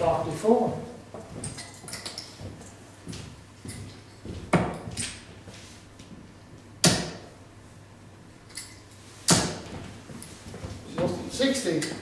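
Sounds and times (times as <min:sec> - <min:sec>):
darts thudding into dartboard: 0:06.8 - 0:07.3, 0:09.3 - 0:09.7.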